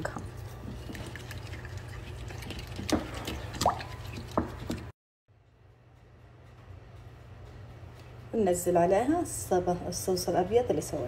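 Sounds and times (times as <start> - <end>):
whisk stirring thick mixture: 0.0 - 4.9.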